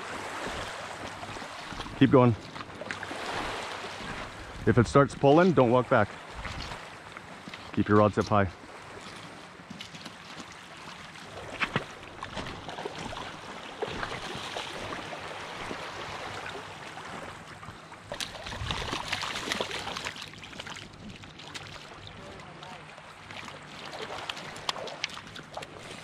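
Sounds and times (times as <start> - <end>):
water sloshing over pebbles: 0.0 - 4.4, 5.7 - 26.0
fish thrashing and splashing: 8.8 - 22.2, 22.8 - 26.0.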